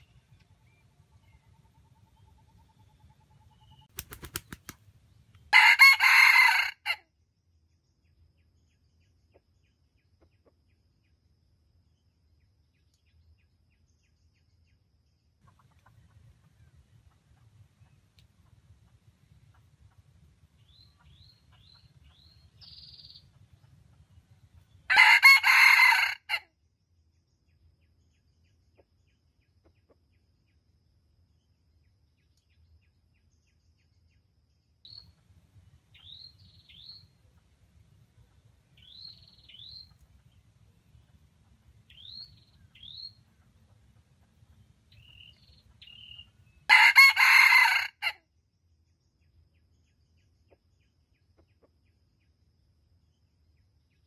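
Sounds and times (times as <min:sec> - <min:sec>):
small birds chirping: 0:00.0 - 0:05.5, 0:12.0 - 0:25.0, 0:31.7 - 0:46.8
rooster crowing: 0:05.5 - 0:07.0, 0:24.9 - 0:26.4, 0:46.7 - 0:48.2.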